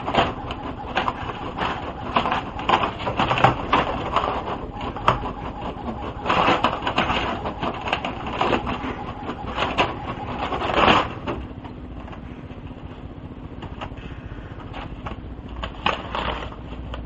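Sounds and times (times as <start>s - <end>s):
inkjet printer running: 0.0s - 11.5s.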